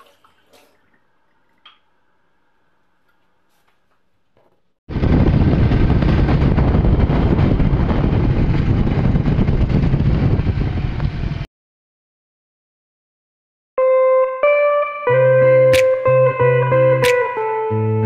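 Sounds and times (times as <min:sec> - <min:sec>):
motorcycle engine and road noise: 0:04.9 - 0:11.5
wind on microphone: 0:04.9 - 0:11.5.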